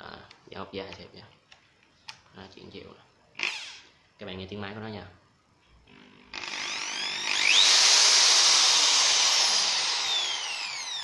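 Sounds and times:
hammer drill motor whining: 5.9 - 11.0.

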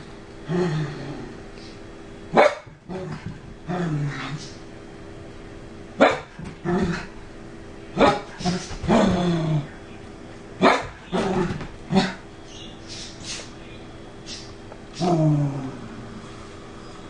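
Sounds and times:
dog growling: 0.4 - 1.8, 2.9 - 4.6, 6.6 - 7.1, 8.0 - 9.8, 11.0 - 12.2, 14.9 - 16.2
dog barking: 2.3 - 2.8, 6.0 - 6.3, 8.0 - 8.3, 10.6 - 11.0.

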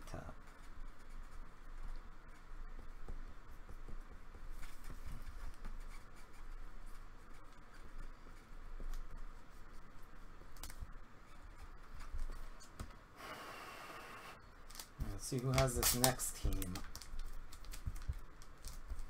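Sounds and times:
trading cards clicking and tapping: 14.7 - 19.0.

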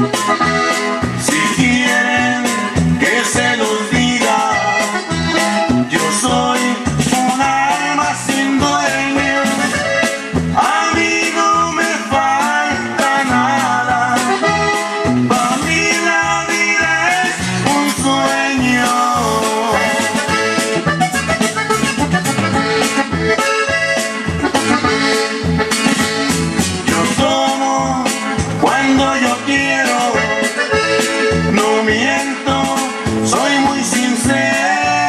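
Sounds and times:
latin dance music with accordion: 0.0 - 35.0.

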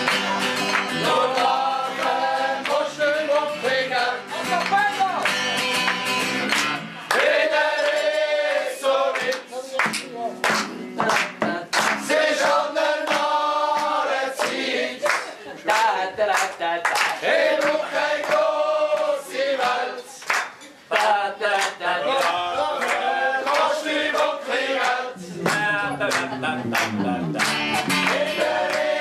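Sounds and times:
strummed acoustic guitar: 0.0 - 7.2, 25.2 - 29.0
men singing in chorus: 0.9 - 4.3, 7.2 - 9.5, 11.5 - 16.3, 17.2 - 20.1, 20.9 - 26.7, 28.0 - 29.0.

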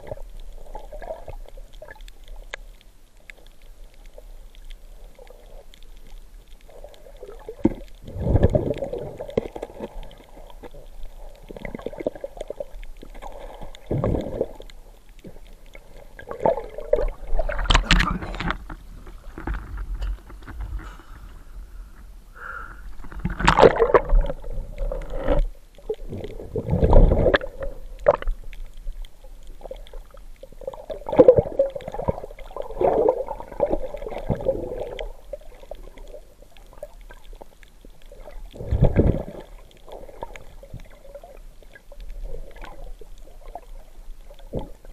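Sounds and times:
underwater sloshing and gurgling: 0.0 - 44.9.

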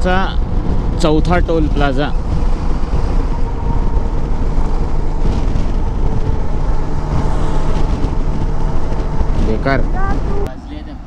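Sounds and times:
motorcycle engine running: 0.0 - 10.6
wind and road noise: 0.0 - 11.0.

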